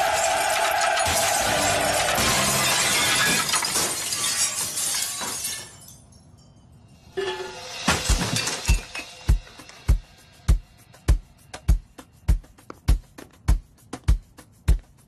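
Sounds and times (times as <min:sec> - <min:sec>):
glass pane shattering: 0:00.0 - 0:06.2, 0:07.2 - 0:09.3
glass crashing and tinkling: 0:00.0 - 0:09.4
music with heavy bass-drum beats: 0:08.1 - 0:15.0.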